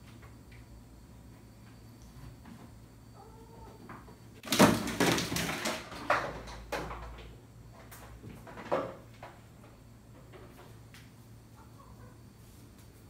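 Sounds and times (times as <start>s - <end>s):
cat crashing onto shelving: 4.4s - 7.1s
plastic baskets clattering: 4.4s - 9.4s.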